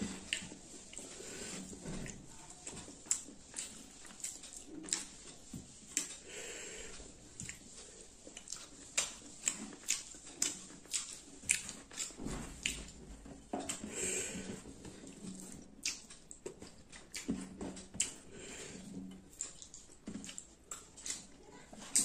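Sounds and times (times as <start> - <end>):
chewing and wet lip-smacking: 0.1 - 6.3, 7.0 - 13.0, 13.6 - 13.9, 14.8 - 22.0
sharp mouth clicks: 15.8 - 16.4.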